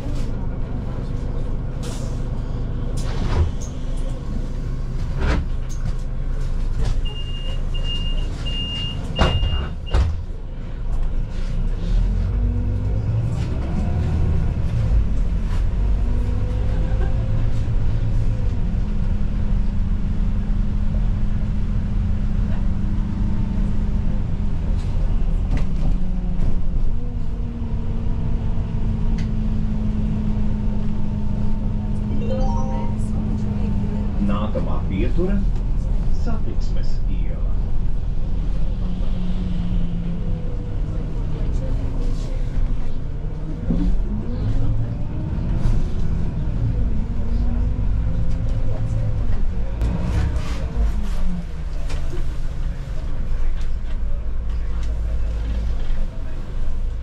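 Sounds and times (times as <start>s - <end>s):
bus engine running: 0.0s - 57.0s
short high beeps: 32.2s - 33.2s.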